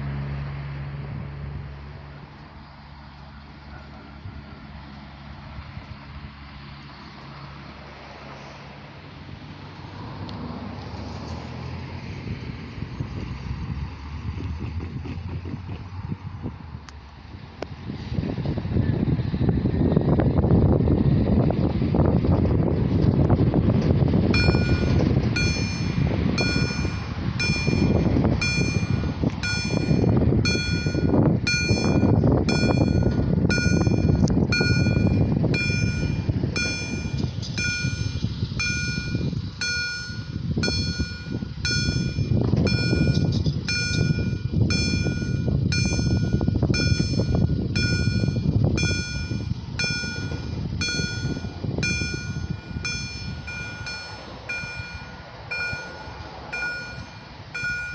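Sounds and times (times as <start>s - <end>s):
level crossing warning bell: 24.3s - 57.9s.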